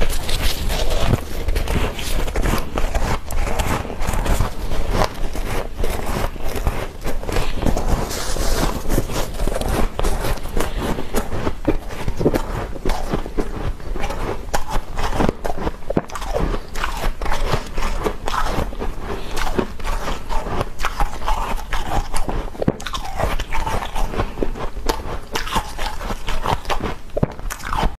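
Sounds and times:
chewing crunchy frost: 0.0 - 27.9.

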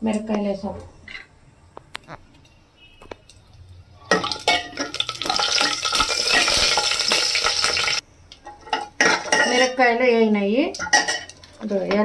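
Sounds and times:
spices sizzling in hot oil: 3.3 - 8.0.

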